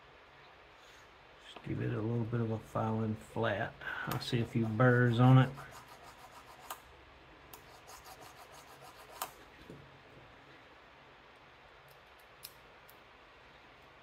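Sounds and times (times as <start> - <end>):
hand file scraping metal: 4.5 - 6.8, 7.6 - 9.4.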